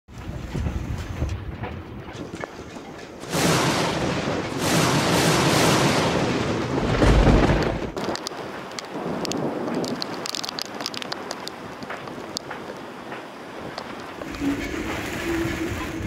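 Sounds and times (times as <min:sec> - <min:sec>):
thunder rumbling and crashing: 0:03.2 - 0:16.0.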